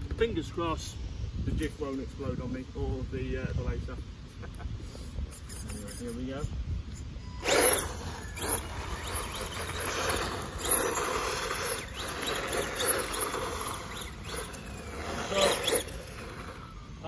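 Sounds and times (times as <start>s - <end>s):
electric motor and gearbox whine: 7.2s - 17.0s
tyres rasping on concrete: 7.4s - 16.8s.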